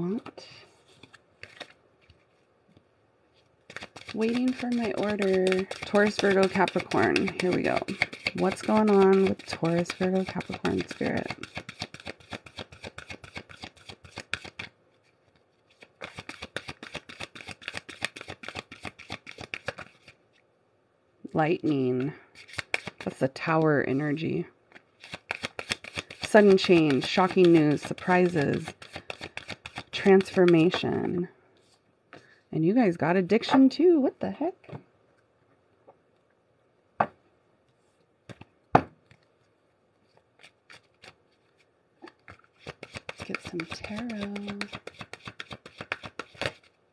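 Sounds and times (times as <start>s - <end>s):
cards being shuffled: 0.8s - 20.2s, 21.6s - 23.2s, 24.7s - 30.9s, 39.1s - 46.8s
cards tapping and clacking: 3.7s - 14.7s, 16.0s - 20.2s, 22.0s - 23.2s, 24.8s - 30.9s, 38.3s - 39.0s, 42.0s - 46.7s.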